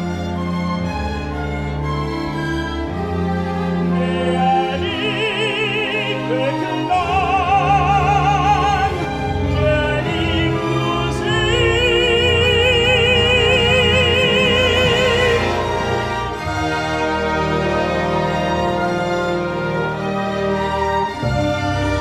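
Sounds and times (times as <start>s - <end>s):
orchestral accompaniment: 0.0s - 22.0s
tenor singing with vibrato: 3.8s - 16.2s.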